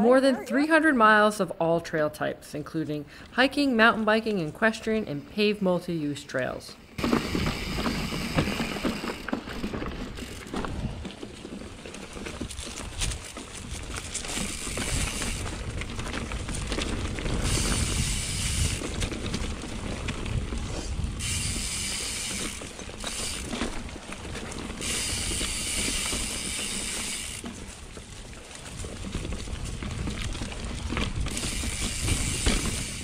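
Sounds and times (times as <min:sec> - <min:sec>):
tyres rumbling on dirt trail: 0:06.9 - 0:33.0
bicycle freehub buzzing: 0:07.0 - 0:10.6, 0:13.6 - 0:15.8, 0:17.2 - 0:19.2, 0:20.6 - 0:27.7, 0:31.2 - 0:33.0.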